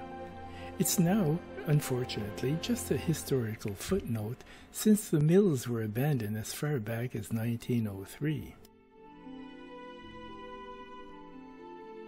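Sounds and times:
music with long held notes: 0:00.0 - 0:05.7, 0:08.7 - 0:12.0.

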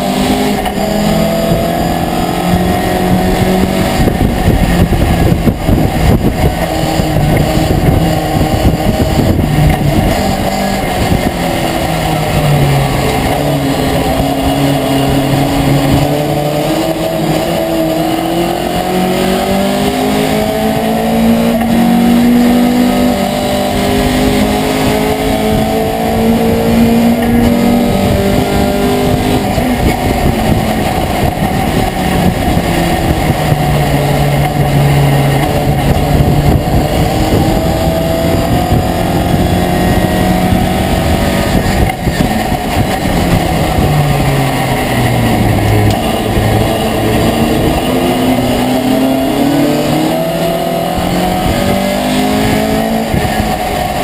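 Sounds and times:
road and wind noise: 0:00.0 - 0:54.0
truck engine revving: 0:00.0 - 0:54.0.

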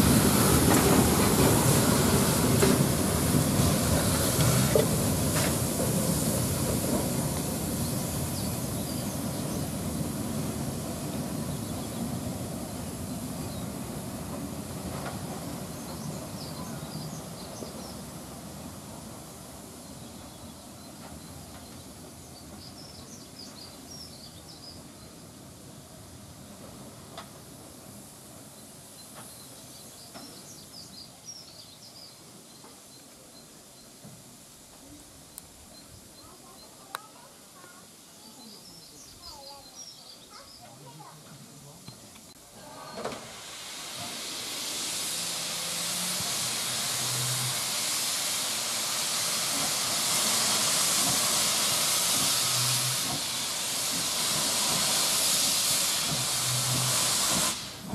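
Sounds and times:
steam locomotive rumbling past: 0:00.0 - 0:33.0, 0:42.3 - 0:57.9
small birds chirping: 0:07.5 - 0:10.2, 0:34.9 - 0:42.4.

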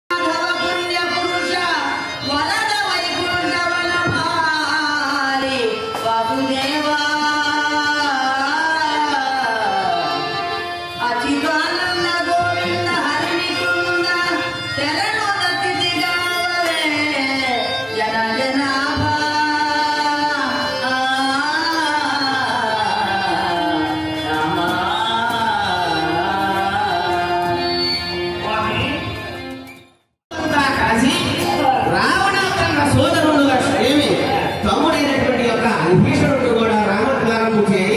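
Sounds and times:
instrumental accompaniment: 0:00.1 - 0:36.4
people singing winding melody: 0:17.4 - 0:27.9.

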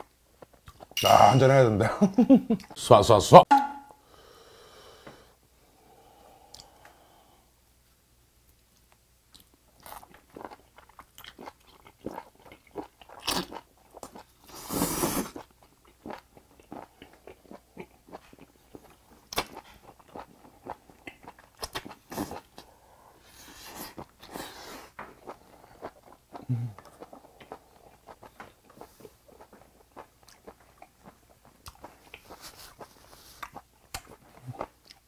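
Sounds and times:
person chewing: 0:00.4 - 0:01.0, 0:08.8 - 0:22.8, 0:23.4 - 0:35.0.

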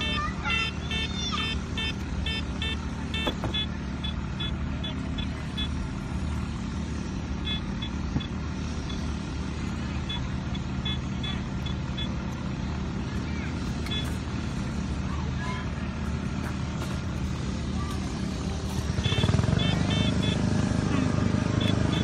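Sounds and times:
grass cutter engine drone: 0:00.0 - 0:22.0
metal detector beeping: 0:00.6 - 0:04.6, 0:07.4 - 0:09.0, 0:13.8 - 0:14.2, 0:19.0 - 0:21.0, 0:21.6 - 0:22.0.

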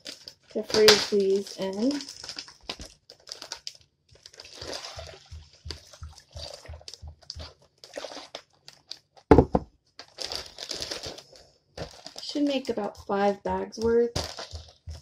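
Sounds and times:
plastic bag crinkling: 0:00.0 - 0:09.3, 0:10.0 - 0:12.7, 0:14.2 - 0:14.8
loud knock: 0:09.3 - 0:09.6.

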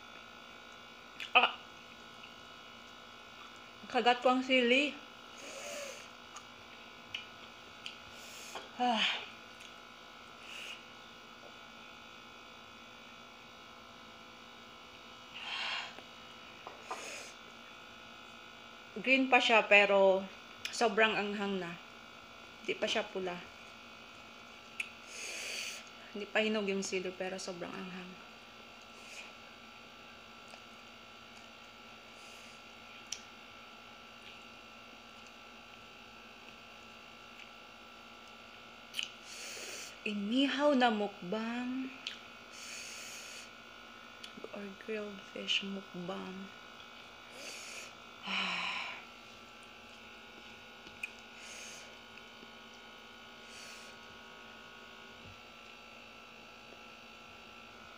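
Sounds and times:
low electrical hum: 0:00.0 - 0:57.9
quiet chewing: 0:50.8 - 0:51.3.

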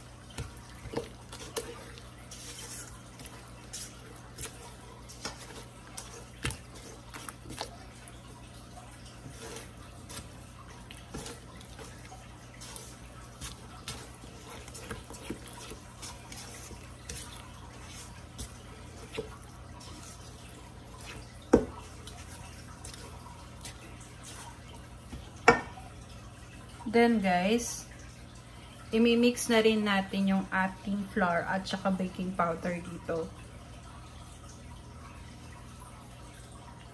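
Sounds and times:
spatula stirring batter in metal bowl: 0:00.0 - 0:25.8.

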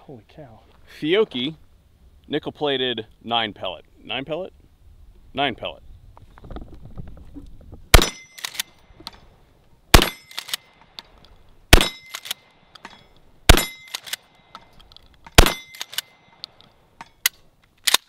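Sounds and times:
shotgun firing: 0:07.9 - 0:08.6, 0:09.9 - 0:10.6, 0:11.7 - 0:12.4, 0:13.5 - 0:14.2, 0:15.4 - 0:16.1.

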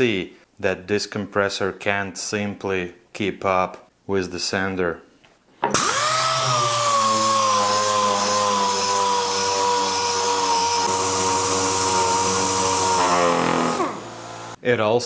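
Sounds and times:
air sander whining: 0:05.7 - 0:14.6.

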